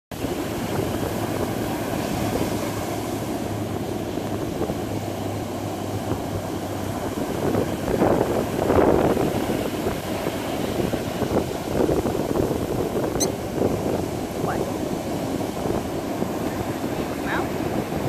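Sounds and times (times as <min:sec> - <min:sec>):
ocean surf breaking on beach: 0:00.2 - 0:18.0
wind rumbling on microphone: 0:00.2 - 0:18.0.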